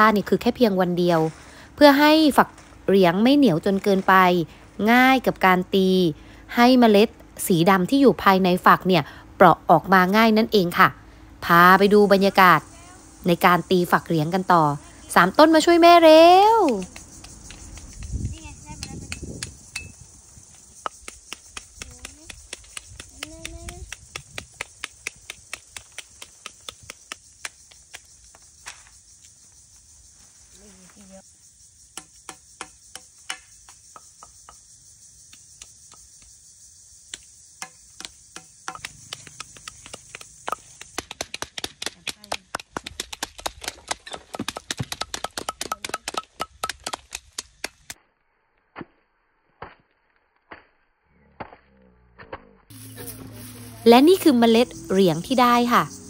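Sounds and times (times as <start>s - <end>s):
wooden club knocking on pods: 32.0s - 34.6s, 37.6s - 42.0s, 44.1s - 47.2s
husks cracking: 38.0s - 48.0s.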